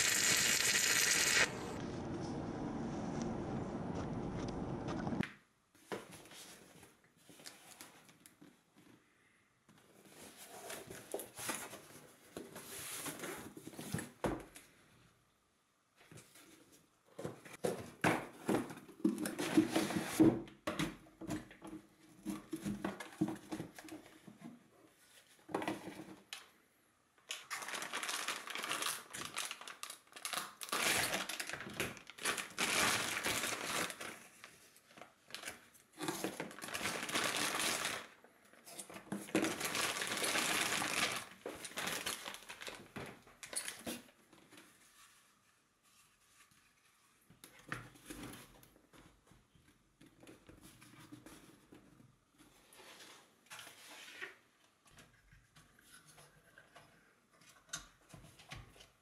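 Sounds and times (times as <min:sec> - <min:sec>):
plastic bags crinkling: 0:27.3 - 0:34.5, 0:35.3 - 0:38.2, 0:39.3 - 0:43.8.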